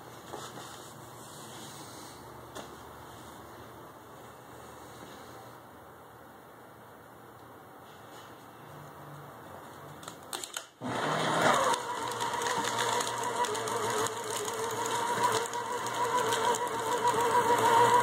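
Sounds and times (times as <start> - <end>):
paper shredder motor whining: 10.4 - 18.0
paper being cut: 11.5 - 18.0.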